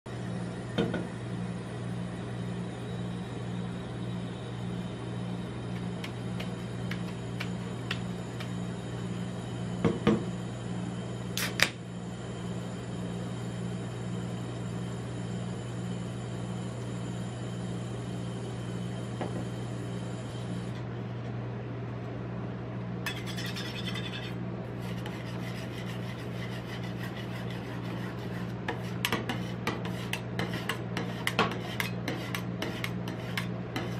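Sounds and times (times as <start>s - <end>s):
ice cream machine humming: 0.1s - 33.9s
metal spatula scraping steel plate: 23.1s - 33.9s.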